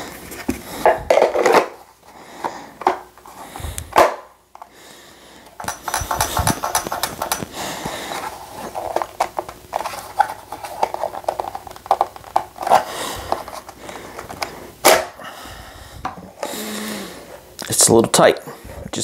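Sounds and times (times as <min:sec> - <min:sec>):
hard plastic scraping: 0:05.6 - 0:15.0.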